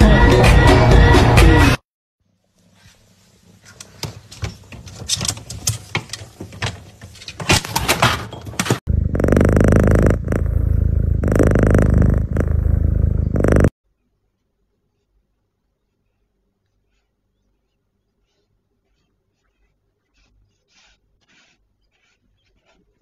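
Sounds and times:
cat purring: 8.9s - 13.7s.

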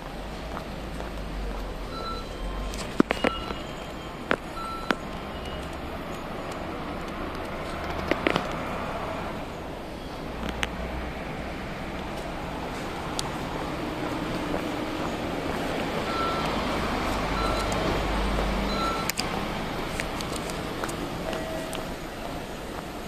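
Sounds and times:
city street traffic: 0.0s - 23.0s
short high warning beeps: 1.9s - 5.7s, 16.1s - 16.7s, 17.3s - 17.8s, 18.6s - 19.1s
large vehicle engine running: 10.2s - 23.0s.

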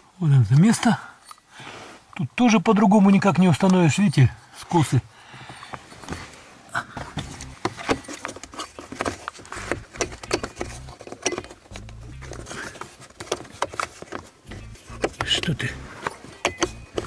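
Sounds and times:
plastic clicks taps and scrapes: 12.7s - 15.3s.

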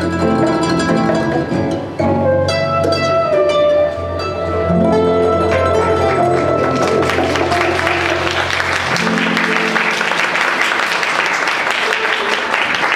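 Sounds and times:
samba band chord: 4.4s - 10.9s
audience applause: 6.0s - 12.9s.

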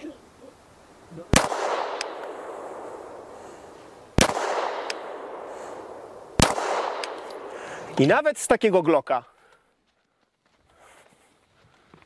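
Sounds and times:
pistol shots with echo: 1.3s - 3.4s, 4.1s - 7.6s.

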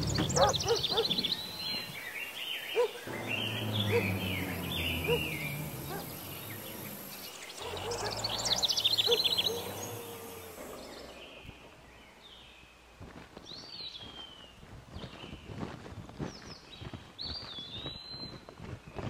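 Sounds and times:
high bird chirps trilling: 0.0s - 12.3s
background hiss: 0.0s - 14.0s.

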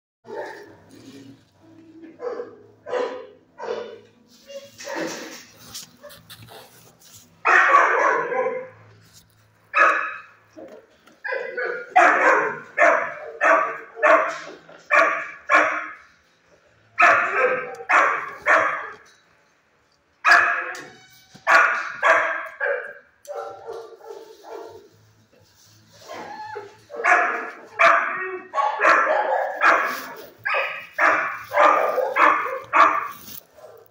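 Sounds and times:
dog barking: 0.3s - 0.8s, 2.2s - 4.0s, 4.8s - 5.3s, 7.4s - 8.8s, 9.7s - 16.0s, 17.0s - 19.0s, 20.2s - 24.9s, 26.9s - 33.9s.

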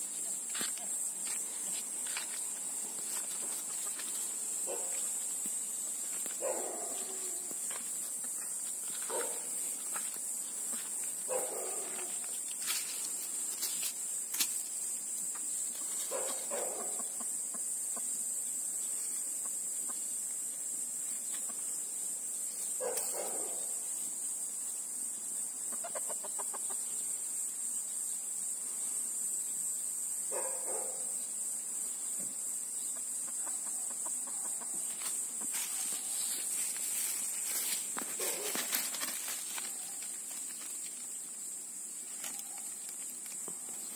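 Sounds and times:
steady high-pitched hiss: 0.0s - 43.9s
chicken clucking: 25.6s - 26.9s, 33.0s - 34.8s.

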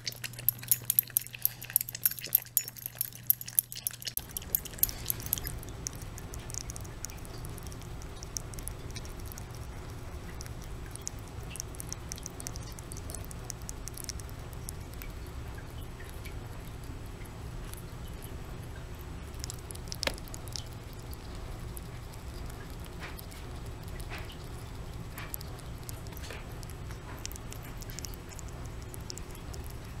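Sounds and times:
rat licking and chewing: 0.0s - 30.0s
steady low hum: 0.0s - 30.0s.

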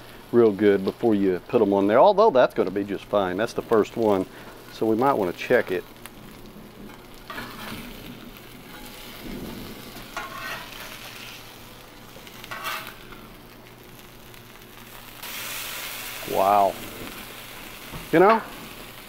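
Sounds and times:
chicken sizzling on griddle: 0.0s - 19.0s
metal spatula scraping griddle: 6.9s - 11.5s, 12.3s - 13.1s.

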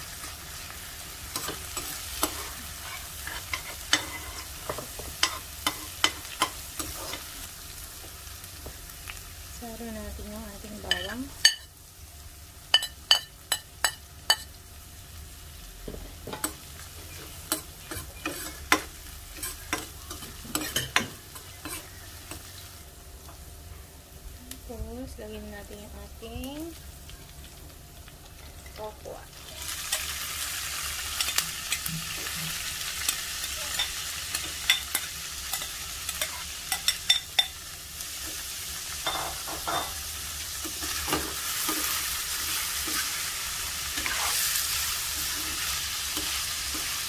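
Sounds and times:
onion sizzling in a frying pan: 0.0s - 47.0s
metal spoon scraping a pan: 1.3s - 7.4s, 16.4s - 22.5s, 31.2s - 37.6s, 40.6s - 47.0s.

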